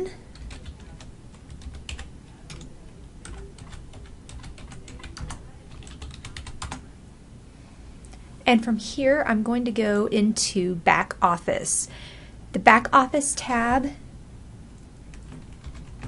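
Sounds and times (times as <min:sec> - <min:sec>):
keyboard typing: 0:00.3 - 0:06.8, 0:14.8 - 0:16.0.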